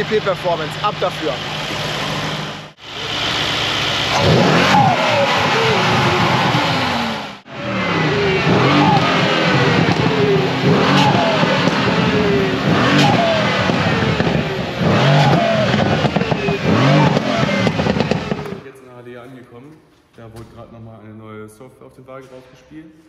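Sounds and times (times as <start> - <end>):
car engine revving: 0.0 - 18.7
falling turbo whistle: 2.0 - 18.5.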